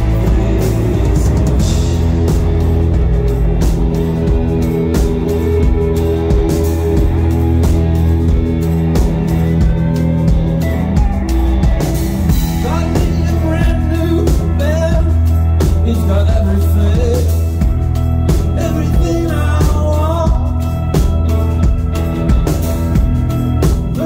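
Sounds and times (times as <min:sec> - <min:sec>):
drum hits: 0:00.0 - 0:13.3
bass notes: 0:00.0 - 0:24.0
electric guitars: 0:00.0 - 0:24.0.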